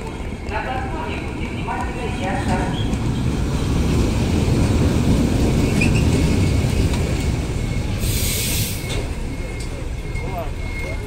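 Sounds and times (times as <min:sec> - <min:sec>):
train wheels rumbling on rails: 0:00.0 - 0:11.0
hiss burst: 0:08.0 - 0:08.9.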